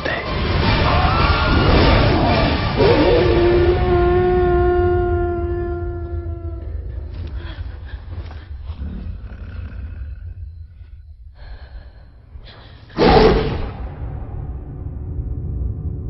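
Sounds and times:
low rumbling drone: 0:00.3 - 0:16.0
monster roar: 0:00.6 - 0:07.2.

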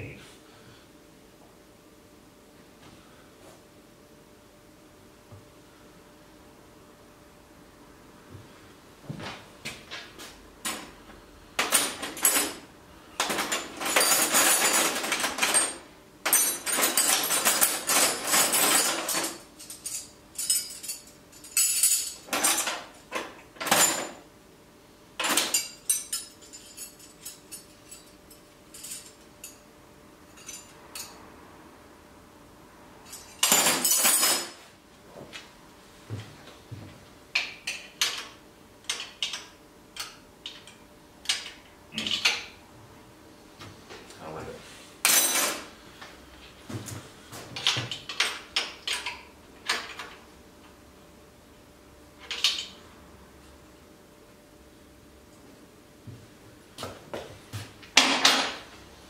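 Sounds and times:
metal tools clattering in drawer: 0:13.2 - 0:24.2, 0:33.1 - 0:34.7, 0:58.0 - 0:58.6.

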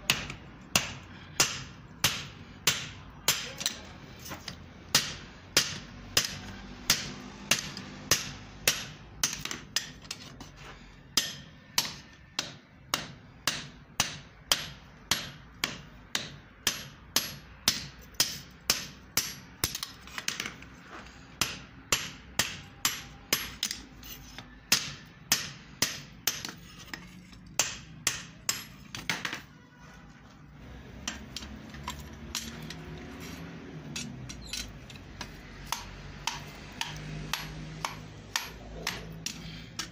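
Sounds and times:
hammer striking metal on anvil: 0:11.2 - 0:20.0, 0:21.4 - 0:23.8, 0:24.7 - 0:27.0, 0:27.6 - 0:29.4, 0:35.2 - 0:39.9.

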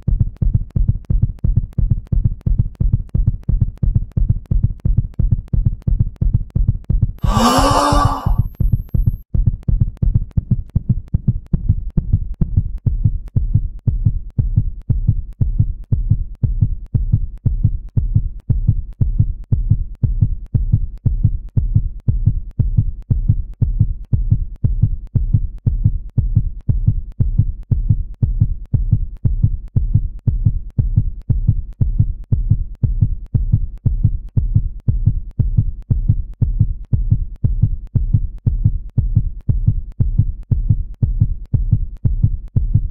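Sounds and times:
low heartbeat-like thumps: 0:09.4 - 0:42.9.

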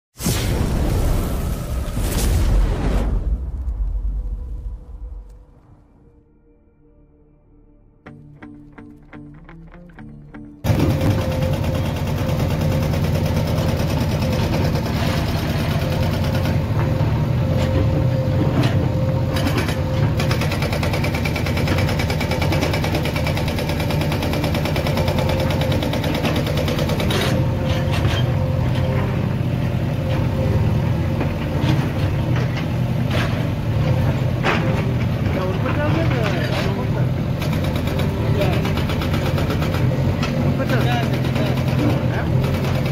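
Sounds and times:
diesel engines rumbling: 0:10.6 - 0:42.9.

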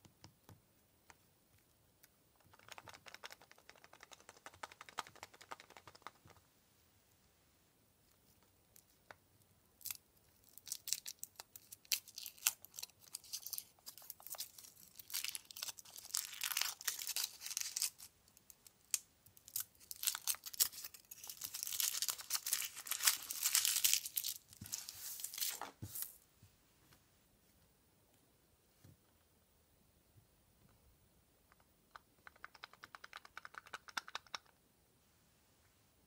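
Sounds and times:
foil wrapper crinkling and tearing: 0:09.9 - 0:18.1, 0:18.9 - 0:25.6.

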